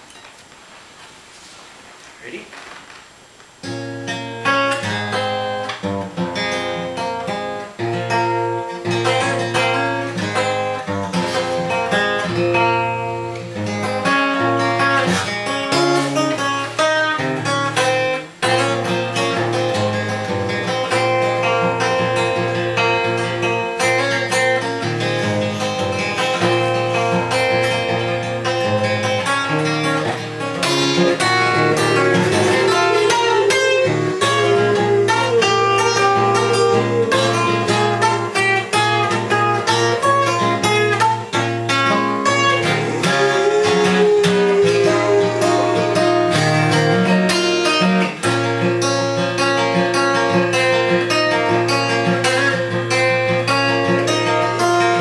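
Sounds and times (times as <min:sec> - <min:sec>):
acoustic guitar strummed: 0:03.5 - 0:55.0
dog howling: 0:29.9 - 0:47.8.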